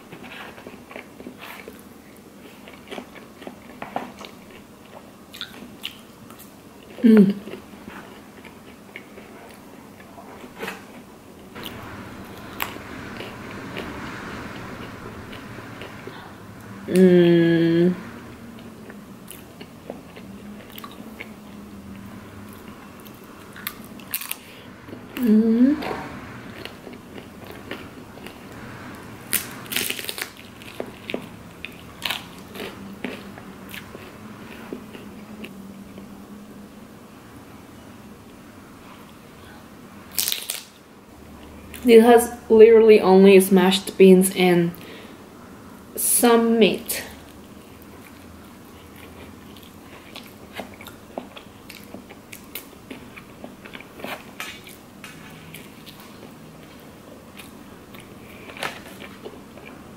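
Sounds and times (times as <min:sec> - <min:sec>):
person chewing food: 0:00.0 - 0:13.9, 0:18.6 - 0:25.9, 0:26.5 - 0:28.4, 0:29.3 - 0:36.2, 0:47.3 - 0:59.9
crunching tortilla chip: 0:29.3 - 0:33.3, 0:40.1 - 0:40.8.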